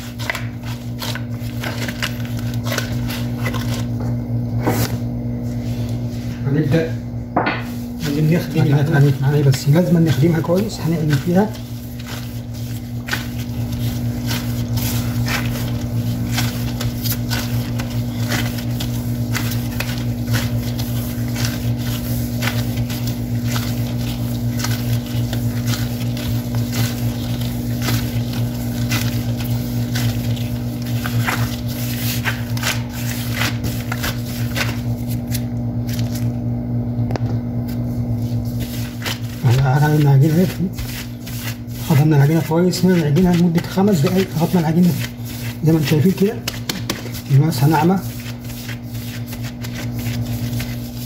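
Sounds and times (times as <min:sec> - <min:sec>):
steady low hum: 0:00.0 - 0:51.0
dough slapping on counter: 0:07.4 - 0:36.2, 0:37.2 - 0:51.0.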